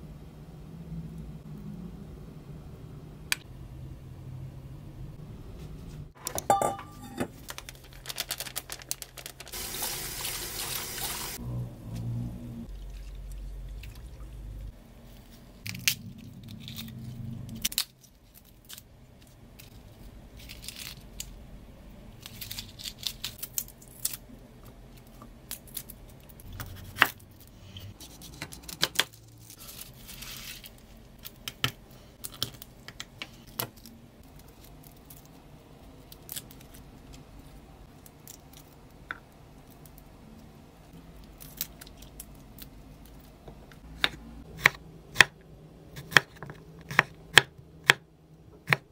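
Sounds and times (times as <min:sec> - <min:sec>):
garlic skins peeled by hand: 0:15.1 - 0:21.4, 0:22.1 - 0:24.4, 0:25.0 - 0:40.1.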